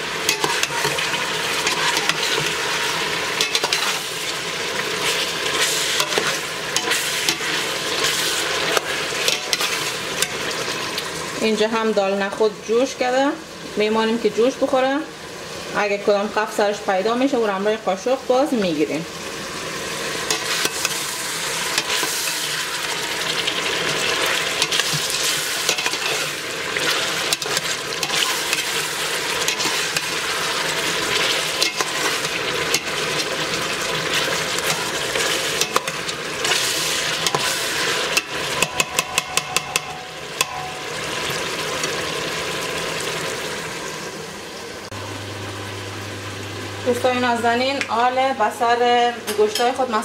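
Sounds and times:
meat and onion sizzling in a pot: 0:00.0 - 0:50.0
metal spoon scraping a pot: 0:00.2 - 0:04.1, 0:24.6 - 0:30.2, 0:31.1 - 0:33.3, 0:34.1 - 0:39.9.

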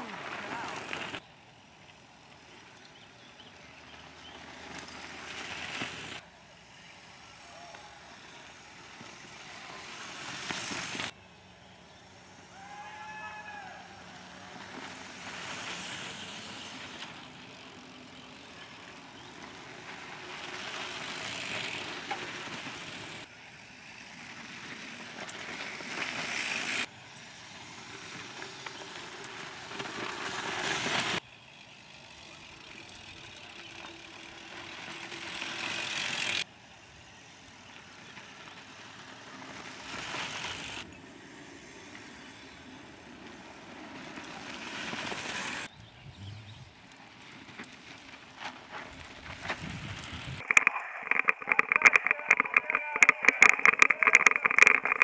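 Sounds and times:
bike tyres on dirt: 0:00.0 - 0:55.0.

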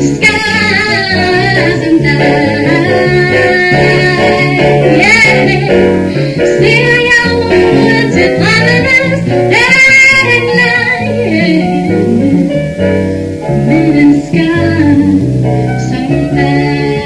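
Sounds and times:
grand piano: 0:00.0 - 0:17.0
woman singing ballad: 0:00.0 - 0:17.0.

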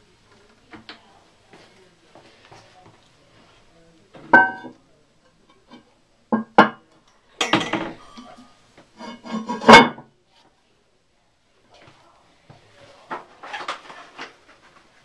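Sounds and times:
porcelain lid clinking and scraping: 0:09.0 - 0:10.0.

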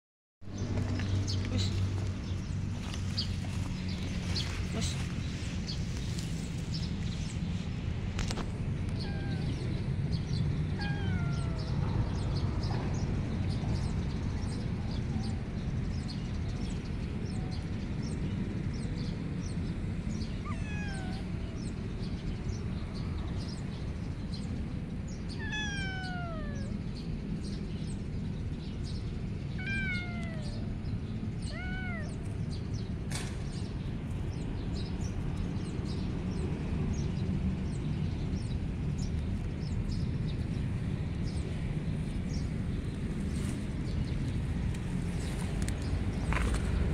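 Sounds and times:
steady low rumble: 0:00.5 - 0:18.4, 0:19.2 - 0:46.9
kitten meowing: 0:08.9 - 0:09.8, 0:10.7 - 0:11.8, 0:20.3 - 0:21.7, 0:25.3 - 0:26.8, 0:29.6 - 0:30.7, 0:31.4 - 0:32.4.

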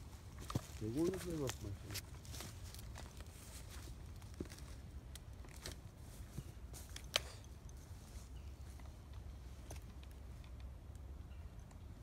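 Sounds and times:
footsteps crunching in dry leaves: 0:00.0 - 0:07.0.

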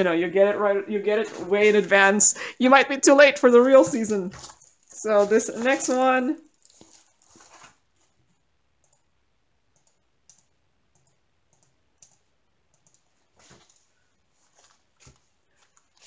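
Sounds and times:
packaging rustling: 0:03.6 - 0:08.2, 0:13.4 - 0:16.0.

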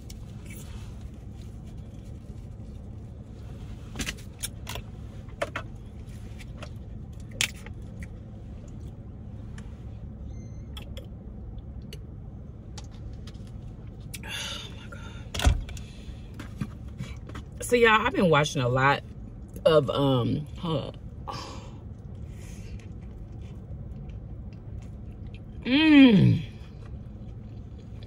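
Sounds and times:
eating crunches and clicks: 0:22.0 - 0:25.6, 0:26.7 - 0:28.0.

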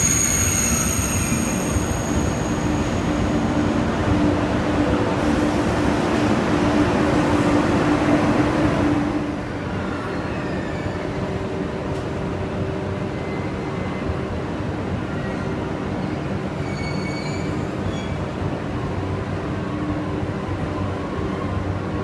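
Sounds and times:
train humming at platform: 0:00.0 - 0:22.0
train rumbling past: 0:00.0 - 0:22.0.

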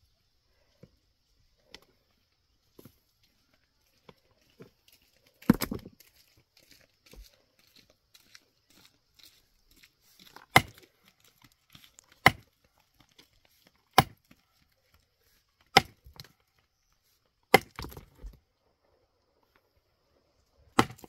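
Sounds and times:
hand tool striking rock: 0:05.4 - 0:05.9, 0:10.2 - 0:12.5, 0:13.9 - 0:14.4, 0:15.7 - 0:16.3, 0:17.5 - 0:18.3, 0:20.8 - 0:21.0
broken stone clattering: 0:05.4 - 0:06.0, 0:17.5 - 0:18.4.

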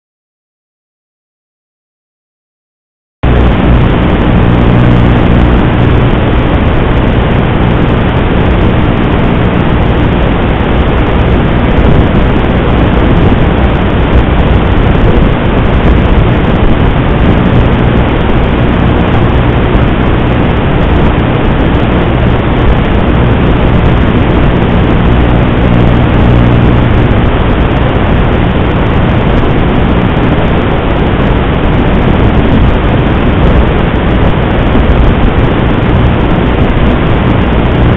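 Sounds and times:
low hum: 0:03.2 - 0:37.9.

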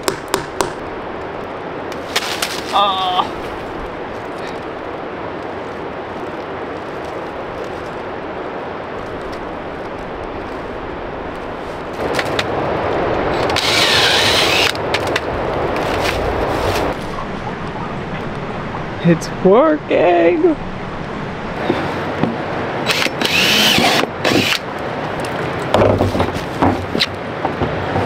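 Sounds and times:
steady background noise: 0:00.0 - 0:28.0
footsteps crunching through dry leaves: 0:02.0 - 0:12.2, 0:15.3 - 0:18.3.

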